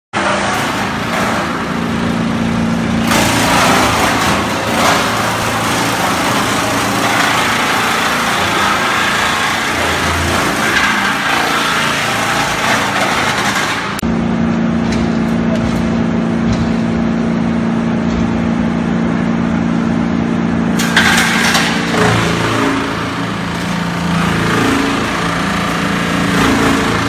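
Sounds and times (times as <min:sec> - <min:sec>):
engine hum: 0:00.2 - 0:27.0
wood chipping noise: 0:03.0 - 0:14.0.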